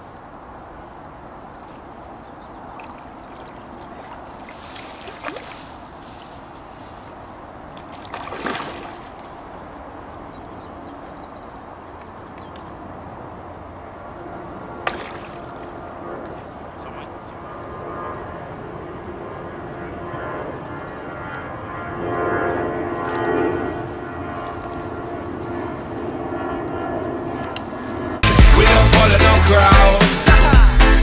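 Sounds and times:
fish splashing: 2.7 - 6.0, 7.7 - 9.6, 14.8 - 15.7
water sloshing: 2.7 - 6.0, 7.6 - 9.7, 14.8 - 15.7.

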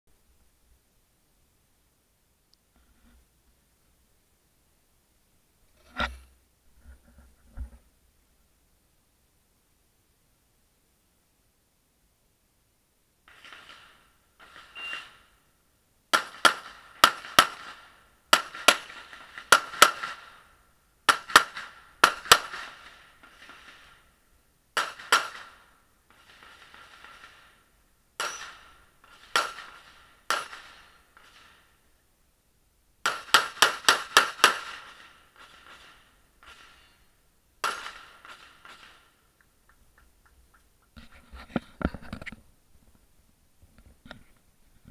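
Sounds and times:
pistol shots: 13.3 - 15.3, 16.1 - 20.5, 21.1 - 24.0, 24.8 - 27.6, 28.2 - 31.7, 33.0 - 36.9, 37.6 - 39.2.

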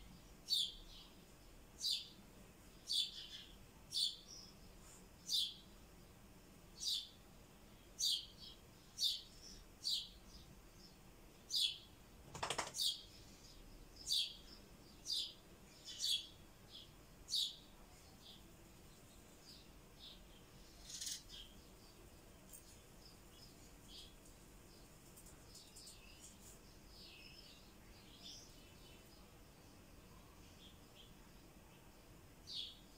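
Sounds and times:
lovebird chirping: 0.0 - 5.7, 12.8 - 32.9
harsh buzzy bird calls: 11.5 - 16.3, 20.6 - 21.6.

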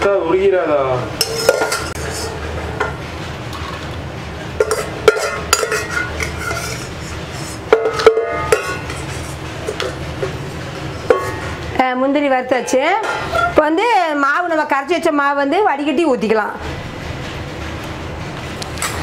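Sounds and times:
spoon scraping metal pot: 1.2 - 3.0, 4.6 - 10.4, 13.0 - 13.6.

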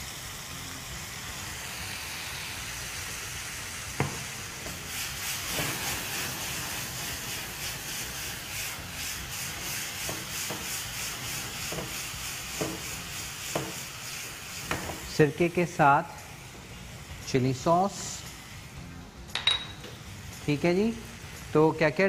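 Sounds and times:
vinegar crackling in hot pan: 0.0 - 18.9
food sizzling in a wok: 0.0 - 22.0.

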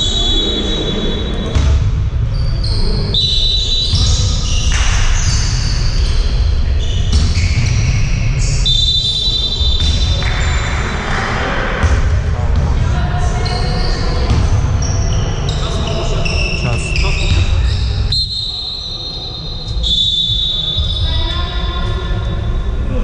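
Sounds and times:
basketball bouncing on court: 1.4 - 2.9, 3.5 - 11.2, 11.8 - 18.1.

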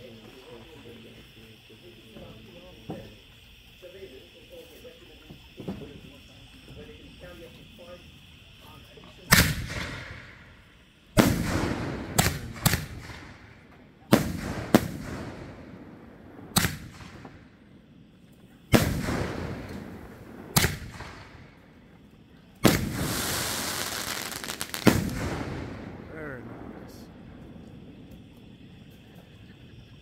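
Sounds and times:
sharp firework reports: 0.0 - 28.9
firework booms echoing: 9.3 - 17.8, 18.6 - 21.8, 22.6 - 28.7.

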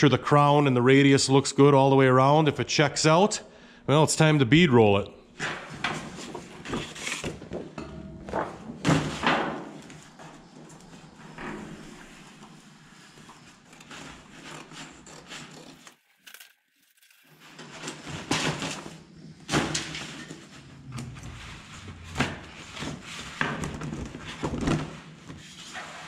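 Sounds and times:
scissors cutting paper: 14.1 - 17.2.

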